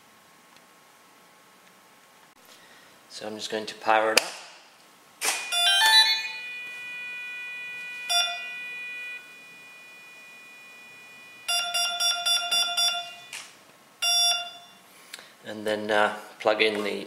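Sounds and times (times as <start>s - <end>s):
electric motor beeps: 5.4s - 13.4s, 14.0s - 14.8s.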